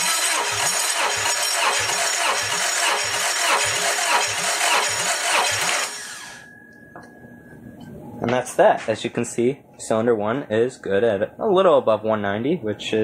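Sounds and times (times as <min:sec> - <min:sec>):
starter motor cranking engine: 0:00.0 - 0:06.4.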